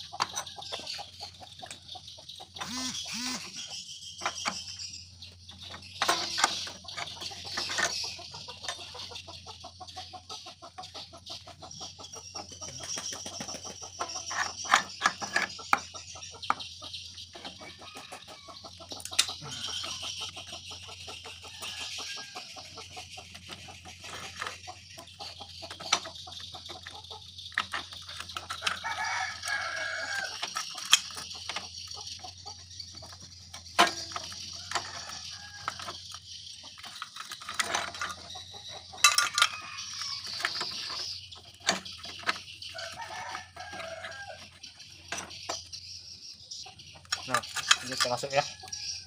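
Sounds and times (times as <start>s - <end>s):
hens clucking: 0.0s - 49.0s
metal parts clicking and clinking: 5.5s - 8.2s, 25.7s - 31.8s, 33.1s - 44.5s, 47.0s - 49.0s
rooster crowing: 28.8s - 30.4s, 42.8s - 44.4s.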